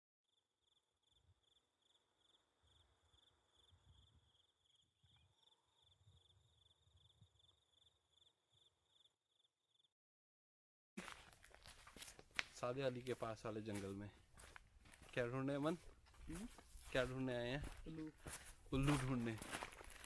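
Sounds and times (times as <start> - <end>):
cricket chirping: 0.3 - 9.9.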